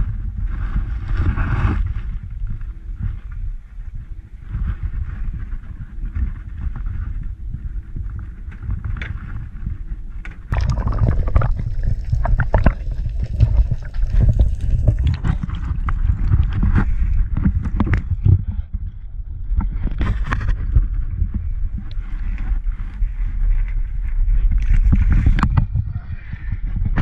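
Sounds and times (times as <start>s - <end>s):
low underwater rumble: 2.2s - 27.0s
water gurgling and sloshing: 10.5s - 26.0s.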